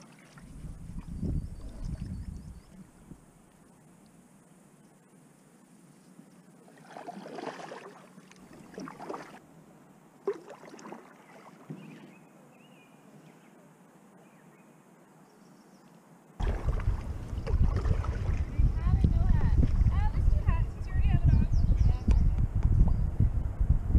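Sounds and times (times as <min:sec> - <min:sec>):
water splashing on raft hull: 0:00.0 - 0:02.3, 0:06.7 - 0:09.4, 0:10.2 - 0:12.2, 0:16.4 - 0:20.5.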